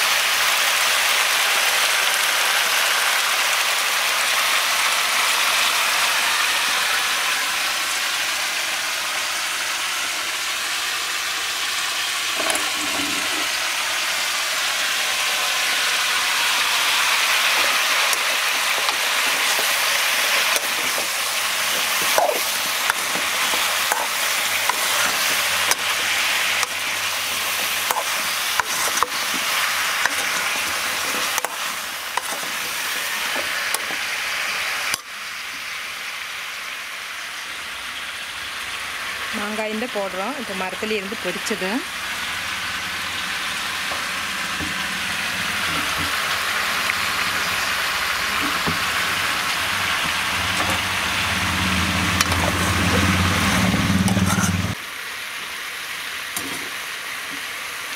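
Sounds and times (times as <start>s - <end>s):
vegetables sizzling in oil: 0.0s - 57.9s
spoon scraping a pan: 12.4s - 13.6s, 17.5s - 34.0s, 54.0s - 54.8s.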